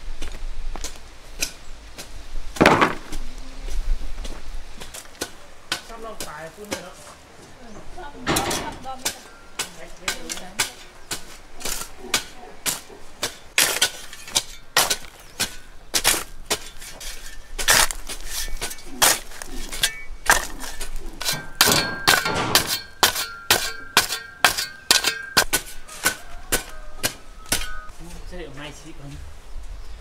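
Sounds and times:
sharp knocks and clatter: 2.6s - 3.1s, 17.6s - 26.7s.

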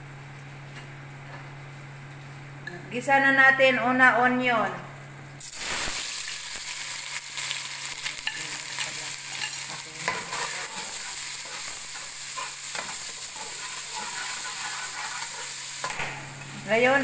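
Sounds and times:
onion sizzling in hot oil: 5.4s - 17.0s
metal spoon scraping a pot: 9.3s - 15.6s.

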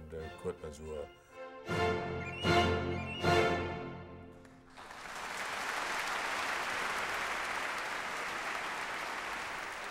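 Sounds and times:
audience applauding: 4.4s - 9.9s.

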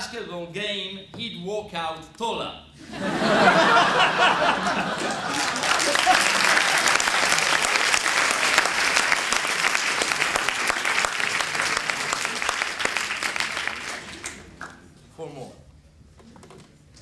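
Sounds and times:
audience applauding: 3.8s - 14.8s.

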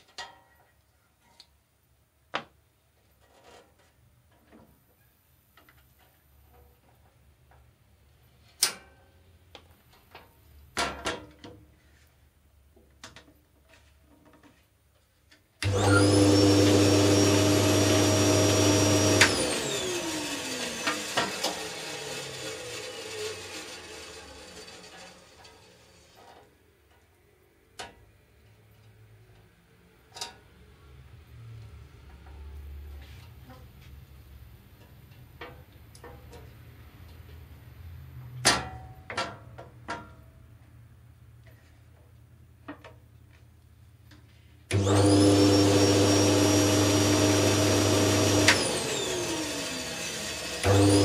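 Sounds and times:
band saw motor whine: 15.7s - 25.4s, 44.8s - 51.0s.

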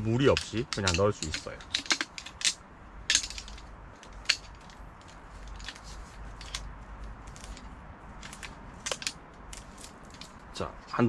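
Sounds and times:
metal frame parts clicking: 0.0s - 11.0s.

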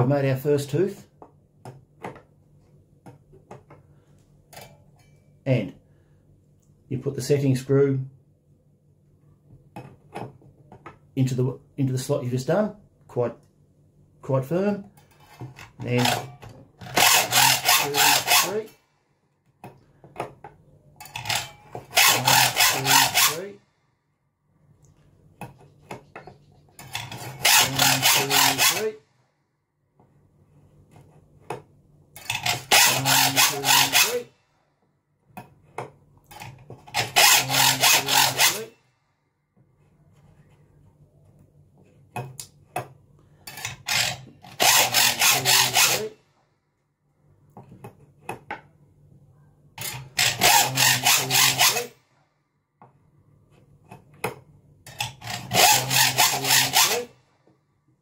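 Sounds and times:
hacksaw cutting metal: 15.1s - 18.8s, 21.0s - 23.6s, 26.8s - 29.0s, 32.2s - 34.3s, 36.3s - 38.8s, 43.5s - 46.2s, 49.8s - 52.0s, 54.9s - 57.2s.

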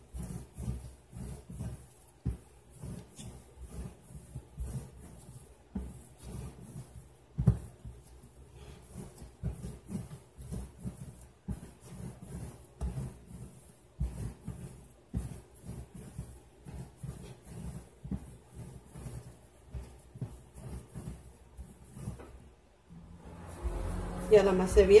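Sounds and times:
dough kneaded by hand: 0.0s - 25.0s.

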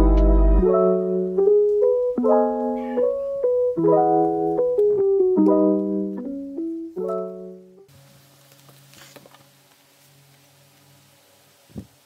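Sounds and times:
lofi beat with bass and drums: 0.0s - 3.4s
piano chords and melody: 0.0s - 7.9s.

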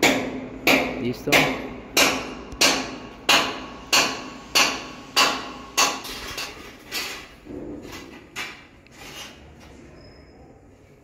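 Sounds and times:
hammer striking steel: 0.0s - 6.5s.

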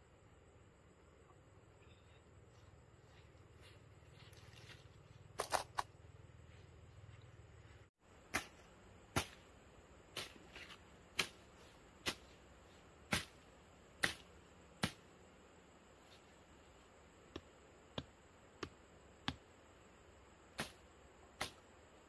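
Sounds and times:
hoe chopping into soil: 8.3s - 9.4s, 10.1s - 12.4s, 13.1s - 13.4s, 14.0s - 15.0s, 20.6s - 20.8s, 21.4s - 21.6s.

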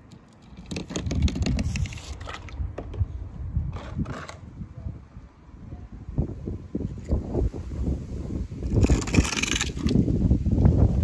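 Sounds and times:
toy car wheels clattering on wood: 0.1s - 3.0s, 8.7s - 10.0s.

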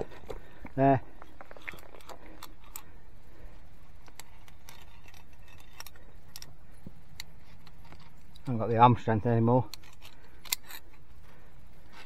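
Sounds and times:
carabiners clinking on steel cable: 4.0s - 6.6s, 7.2s - 11.0s.

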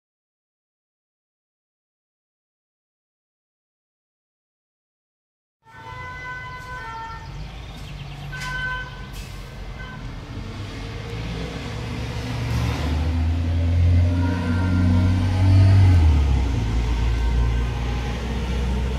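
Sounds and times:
street traffic: 5.6s - 18.9s
two-tone emergency siren: 5.7s - 7.4s, 13.6s - 18.9s
large vehicle engine rumble: 6.7s - 18.9s.

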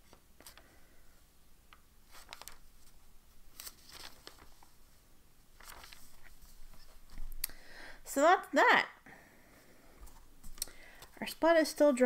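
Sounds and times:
thin pages rustling: 0.0s - 0.7s, 2.0s - 7.3s.

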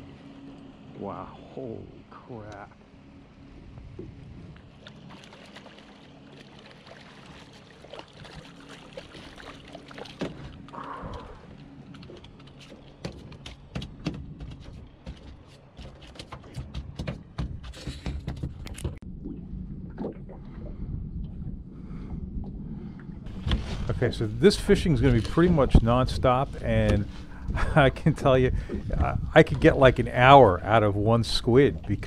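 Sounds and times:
trolling motor hum: 0.0s - 18.0s, 18.6s - 32.0s
fish flopping on boat deck: 23.3s - 30.0s.

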